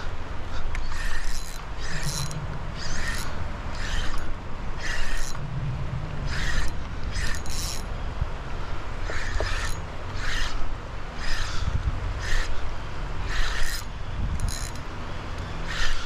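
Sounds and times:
low steady rumble: 0.0s - 16.0s
fishing reel mechanical bursts: 0.8s - 5.4s, 6.3s - 7.9s, 9.1s - 10.6s, 11.2s - 11.6s, 12.2s - 12.6s, 13.3s - 14.8s, 15.6s - 16.0s.

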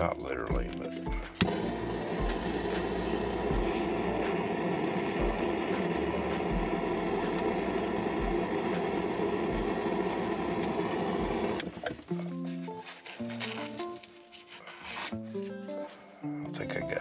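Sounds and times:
gas torch burning: 1.3s - 12.0s.

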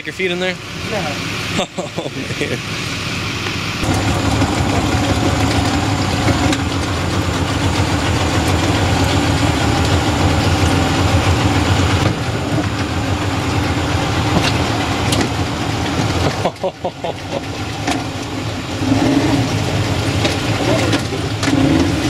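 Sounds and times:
engine running: 0.0s - 22.0s.

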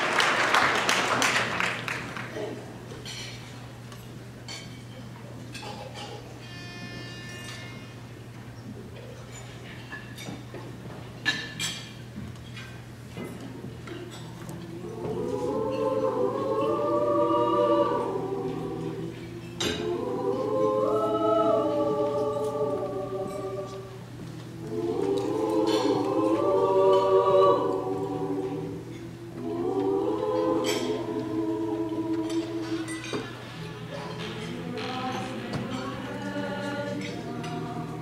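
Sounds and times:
mixed choir singing: 0.0s - 1.8s, 14.5s - 38.0s.

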